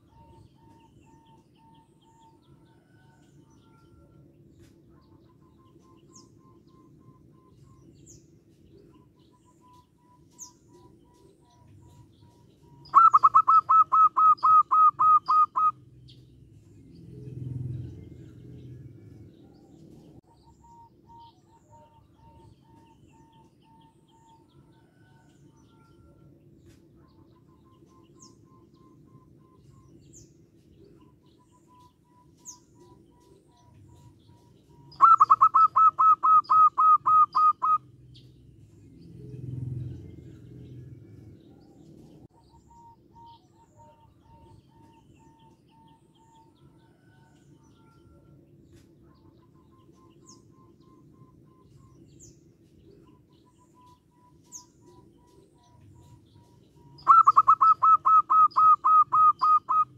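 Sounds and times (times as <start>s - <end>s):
faint bird chirps: 0.0s - 59.9s
dove staccato calls: 10.3s - 15.8s, 32.4s - 37.8s, 53.9s - 59.9s.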